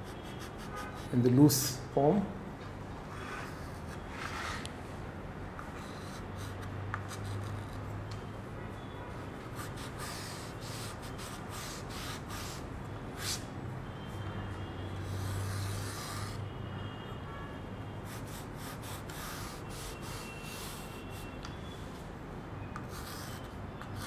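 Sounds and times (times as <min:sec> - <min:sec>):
chalk scratching on slate: 0:00.0 - 0:01.1, 0:09.6 - 0:12.6, 0:15.0 - 0:16.4, 0:18.0 - 0:21.4, 0:22.8 - 0:24.0.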